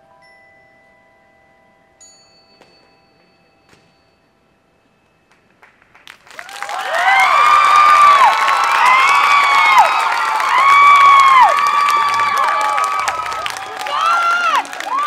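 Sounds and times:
audience clapping and cheering: 5.6s - 15.0s.

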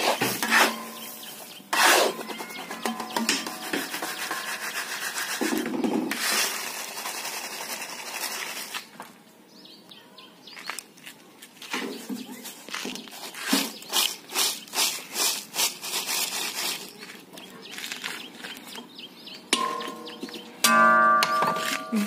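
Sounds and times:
grains hissing through mesh: 3.8s - 8.8s
crisps rattling in mesh basket: 6.3s - 8.9s, 13.1s - 18.2s.

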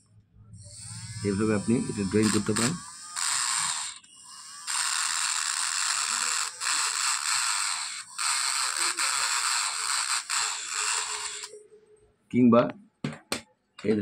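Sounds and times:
engraving pen grinding on glass: 0.8s - 11.6s.

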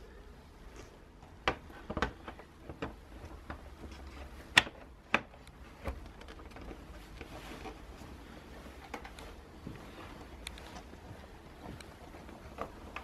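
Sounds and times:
plastic windscreen clicking and tapping: 1.3s - 7.8s.

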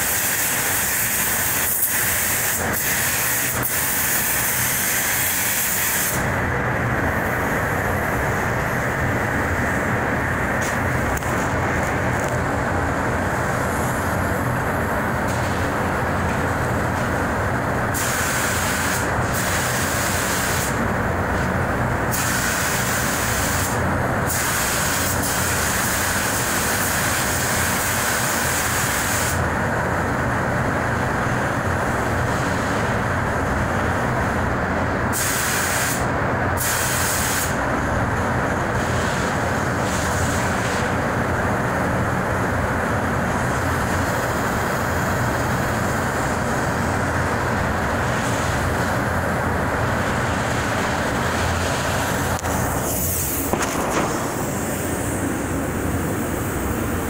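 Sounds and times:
spray gun hissing: 0.0s - 6.3s, 17.9s - 20.8s, 22.1s - 29.4s, 35.1s - 37.6s, 49.8s - 57.0s
air handling rushing noise: 0.0s - 24.4s, 38.4s - 57.0s.

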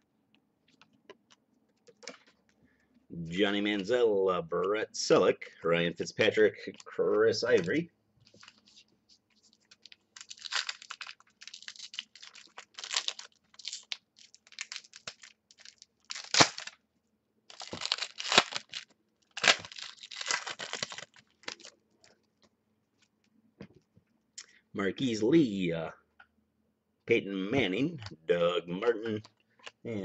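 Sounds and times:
foil wrappers tearing and crinkling: 9.6s - 16.8s, 17.5s - 21.8s.

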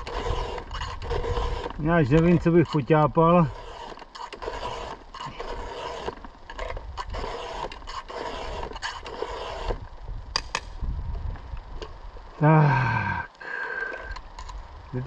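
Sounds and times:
file rasping on chainsaw chain: 0.0s - 9.8s.

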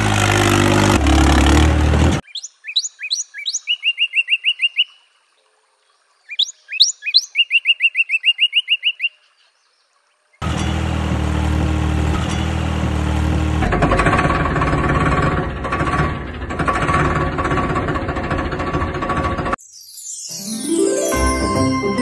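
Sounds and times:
engine-like running sound: 0.0s - 2.2s, 10.4s - 19.6s
bird chirping: 2.2s - 5.1s, 6.2s - 9.9s.

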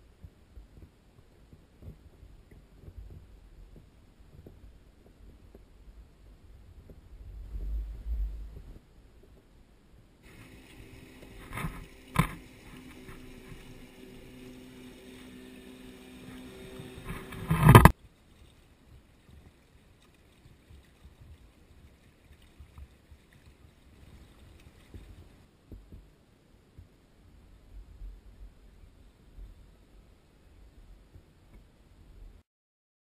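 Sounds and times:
outboard motorboat running: 10.2s - 17.9s
water slapping against microphone: 10.2s - 26.1s.

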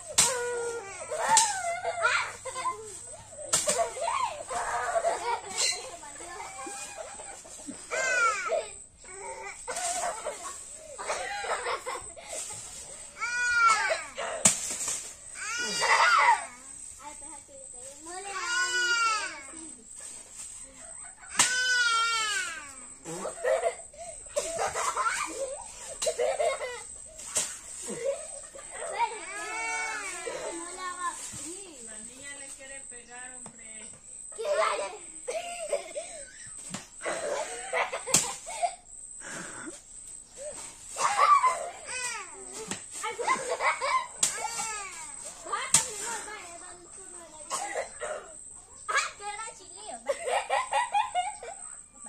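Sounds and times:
girls laughing and shrieking: 0.0s - 14.5s, 15.2s - 16.8s, 18.2s - 31.3s, 34.2s - 39.8s, 40.4s - 52.0s
children chattering and squealing: 0.0s - 52.0s
sharp smack: 21.4s - 21.7s.

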